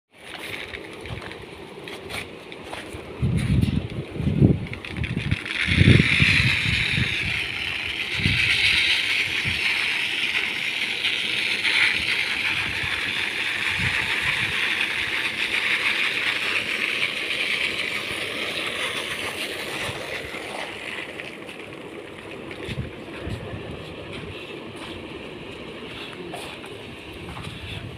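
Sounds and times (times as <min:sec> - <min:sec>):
fan blowing air: 0:00.1 - 0:27.9
grain pouring: 0:00.2 - 0:02.1, 0:04.4 - 0:23.1.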